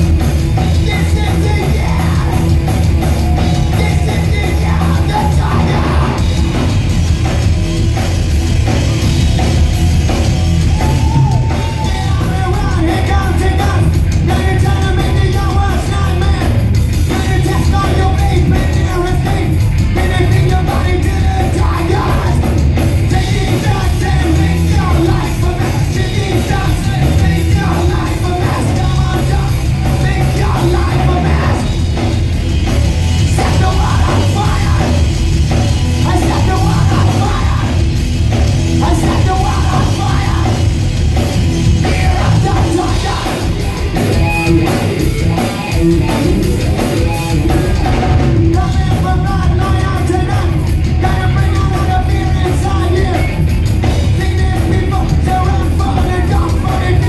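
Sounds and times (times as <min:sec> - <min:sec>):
hard rock band playing: 0:00.0 - 0:57.0
shouted vocals: 0:00.8 - 0:06.3, 0:09.6 - 0:13.8.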